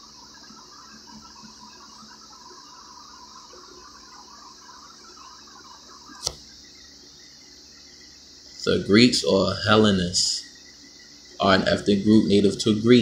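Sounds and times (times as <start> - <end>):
low background hiss: 0.0 - 13.0
sharp click: 6.2 - 6.5.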